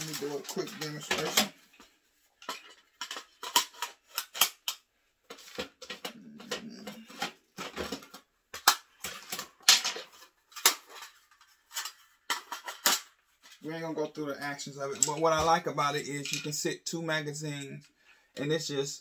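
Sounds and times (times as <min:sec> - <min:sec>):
rifle magazines clicking and clacking: 0:02.4 - 0:13.1.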